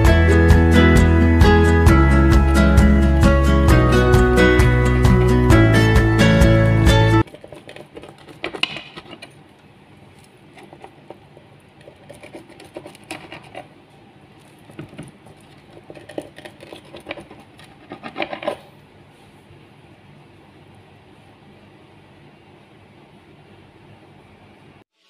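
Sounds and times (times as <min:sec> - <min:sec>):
pizza cutter slicing crust: 0:07.2 - 0:09.4, 0:14.7 - 0:18.7.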